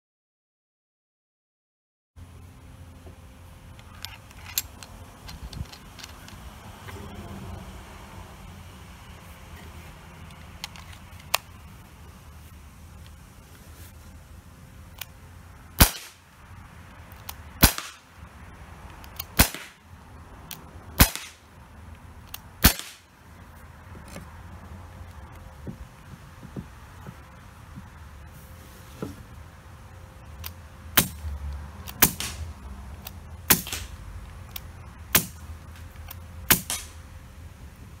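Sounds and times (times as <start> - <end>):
small handling clicks: 3.7 - 7.0, 9.6 - 11.6, 17.1 - 17.4, 18.9 - 19.4, 31.8 - 36.9
air pistol shots cracking: 15.8 - 16.2, 17.6 - 18.1, 19.2 - 19.8, 21.0 - 21.5, 22.6 - 23.1, 31.0 - 31.2, 31.9 - 32.5, 33.4 - 34.0, 35.1 - 35.4, 36.5 - 37.0.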